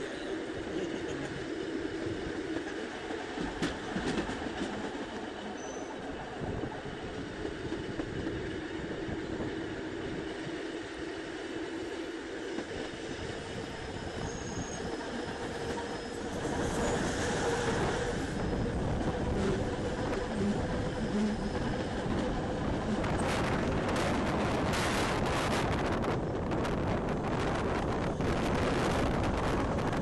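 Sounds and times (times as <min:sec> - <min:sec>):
train wheels rumbling on rail: 0:00.0 - 0:30.0
high wheel squeals: 0:13.8 - 0:22.2.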